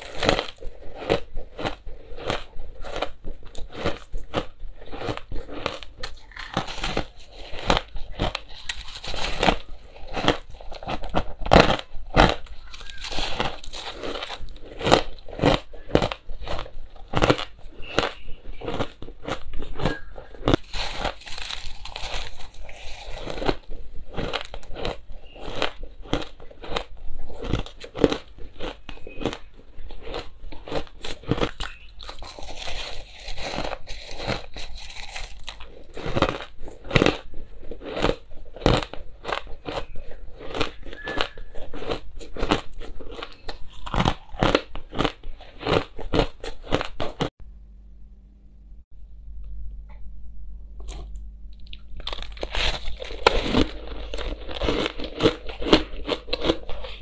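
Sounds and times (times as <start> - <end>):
person crunching ice: 0.0 - 47.3, 50.8 - 57.0.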